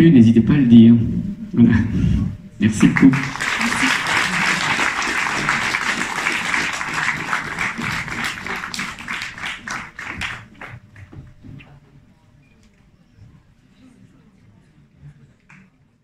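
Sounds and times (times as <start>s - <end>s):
audience applauding: 2.7s - 11.8s.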